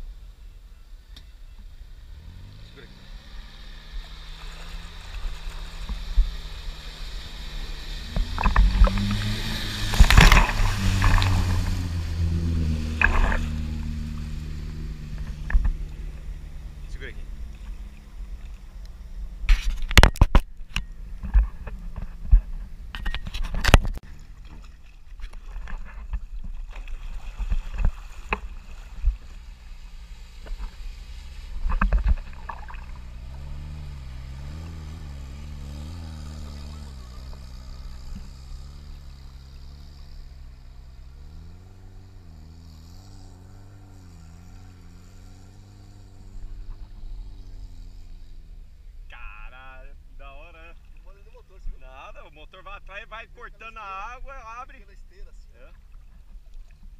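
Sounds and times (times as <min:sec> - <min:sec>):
buggy engine running: 0:00.0 - 0:56.9
knocks and splashes: 0:04.0 - 0:16.2, 0:21.2 - 0:29.6, 0:30.3 - 0:38.4.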